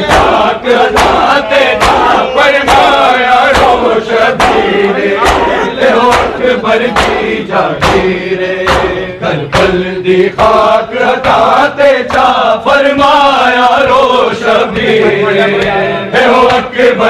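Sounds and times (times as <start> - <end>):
hands slapping bare chests: 0.0 - 9.8, 11.2 - 12.4
crowd of men chanting: 0.0 - 17.0.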